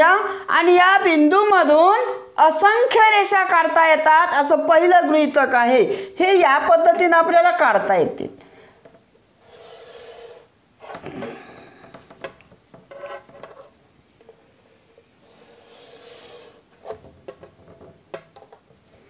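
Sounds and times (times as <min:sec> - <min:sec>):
chalk scraping on chalkboard: 0:09.4 - 0:11.0, 0:12.9 - 0:13.3, 0:14.9 - 0:17.0.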